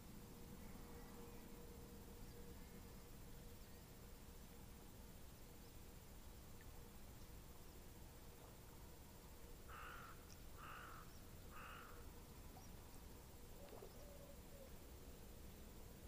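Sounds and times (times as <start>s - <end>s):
low background hiss: 0.0s - 16.0s
crow cawing: 9.7s - 12.0s.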